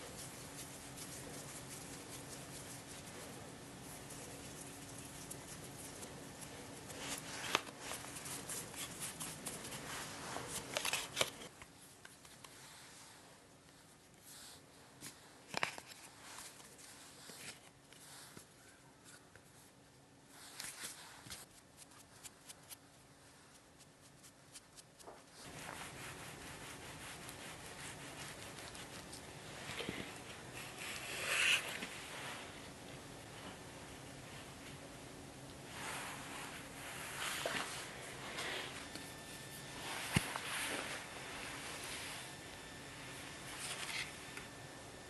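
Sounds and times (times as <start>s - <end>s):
hands rubbing and patting dough: 0.0s - 13.0s, 13.6s - 32.6s.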